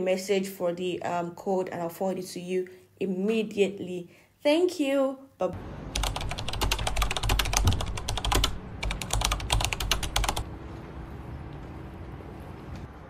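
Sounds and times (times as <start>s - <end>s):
rapid keyboard-like clicking: 5.9s - 10.4s.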